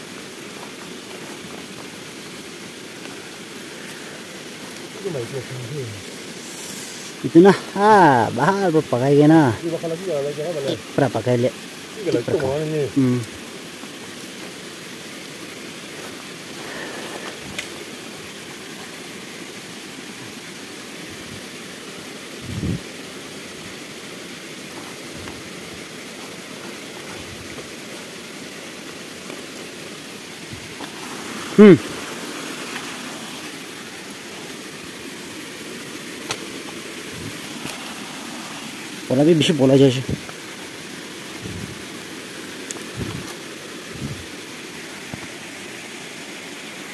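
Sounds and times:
flowing water rushing: 0:00.0 - 0:46.9.

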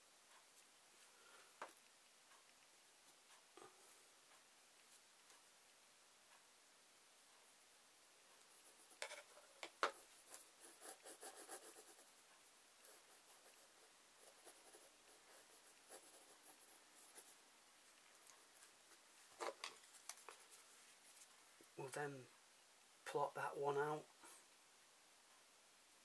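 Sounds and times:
pencil scratching on paper: 0:08.4 - 0:12.2, 0:12.8 - 0:17.4.

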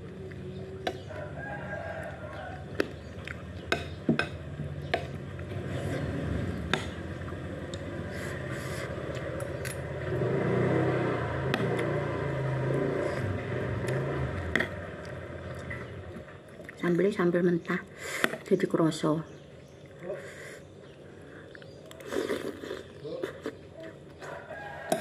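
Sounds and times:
chewing: 0:00.0 - 0:04.1, 0:13.0 - 0:17.0, 0:20.8 - 0:25.0
low engine rumble: 0:00.0 - 0:25.0.

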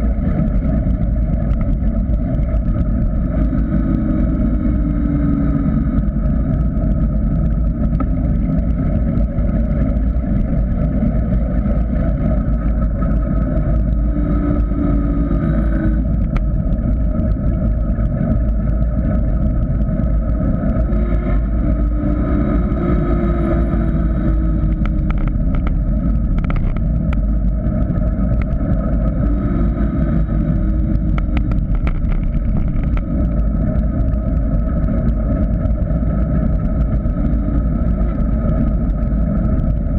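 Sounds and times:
wind rush and rumble: 0:00.0 - 0:39.9
bike clicks and rattles: 0:30.9 - 0:36.9.

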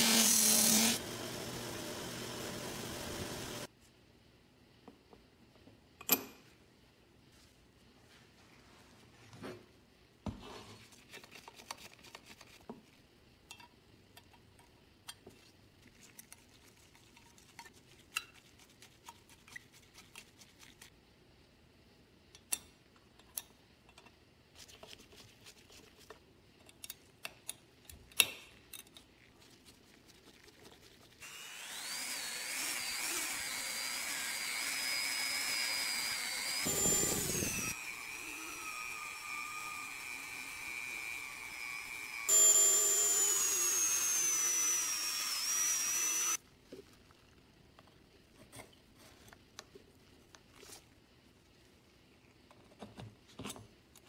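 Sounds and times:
rotary tool whining: 0:00.0 - 0:03.7, 0:31.2 - 0:46.4.

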